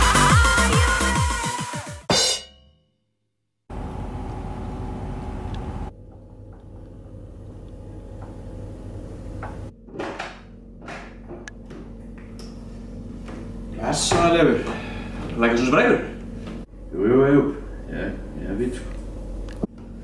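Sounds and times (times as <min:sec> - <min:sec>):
drum music: 0:00.0 - 0:02.7
low room hum: 0:03.7 - 0:20.0.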